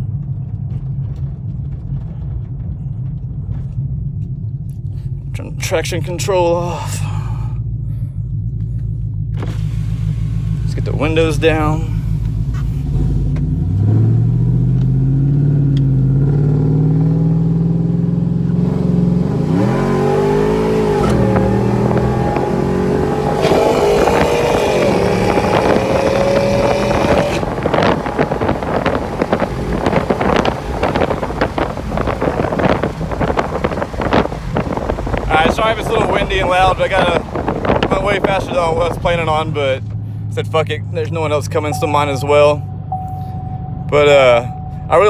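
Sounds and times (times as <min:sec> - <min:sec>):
wind buffeting through open windows: 0:00.0 - 0:06.5, 0:20.0 - 0:39.9
pickup engine accelerating: 0:00.0 - 0:45.0.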